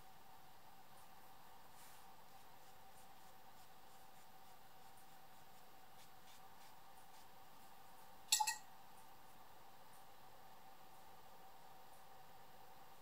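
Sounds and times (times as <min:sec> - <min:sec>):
low steady hum: 0:00.0 - 0:13.0
brush strokes on paper: 0:00.9 - 0:08.1.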